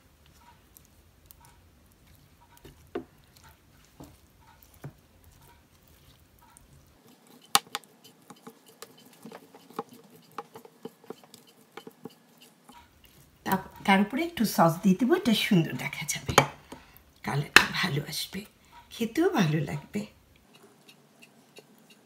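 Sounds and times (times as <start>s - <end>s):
pastry brush tapping in tray: 7.3s - 12.8s.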